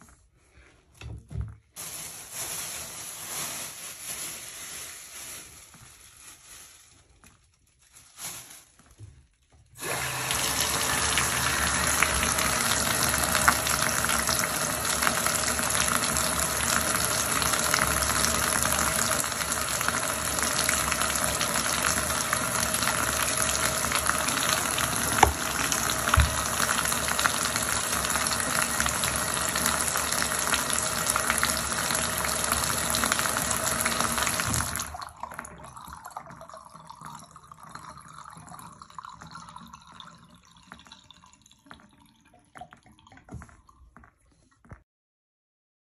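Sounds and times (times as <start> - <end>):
water running into tub: 9.8 - 44.2
bathtub tap turned on: 24.4 - 27.2.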